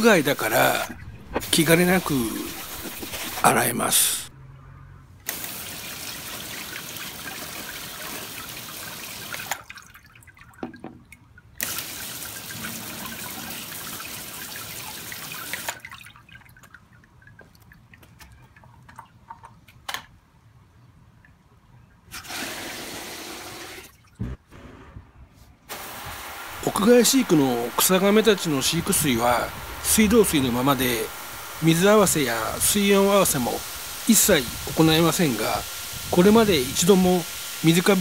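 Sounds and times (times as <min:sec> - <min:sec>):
hose nozzle spraying water: 0:00.0 - 0:03.6, 0:25.7 - 0:38.0
rush of water: 0:00.0 - 0:04.3, 0:25.7 - 0:38.0
water dripping through a grate: 0:05.3 - 0:19.9.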